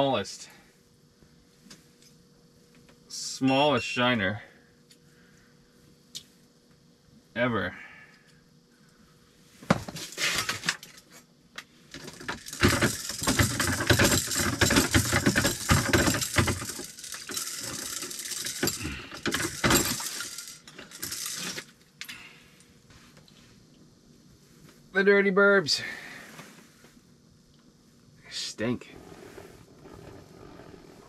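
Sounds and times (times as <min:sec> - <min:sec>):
clatter and clinks of ice fishing: 0:12.0 - 0:21.7.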